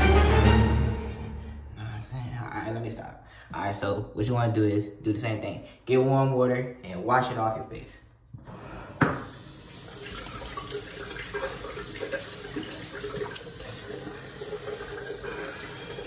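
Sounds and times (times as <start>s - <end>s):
sink tap running: 9.0s - 16.0s.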